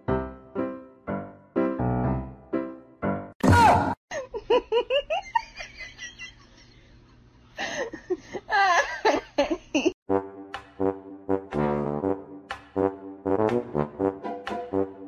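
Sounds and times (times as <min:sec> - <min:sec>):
people laughing and giggling: 0:04.1 - 0:06.8.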